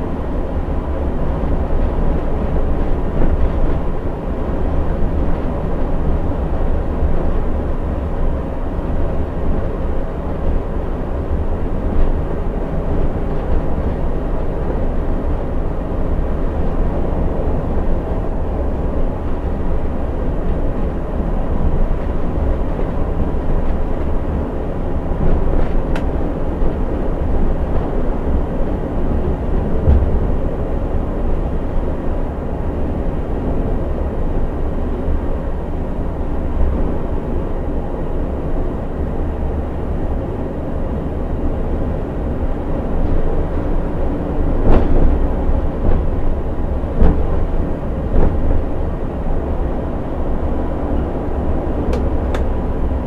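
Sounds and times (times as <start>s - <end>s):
bus engine rumble: 0.0s - 53.0s
tyre and road noise: 42.2s - 53.0s.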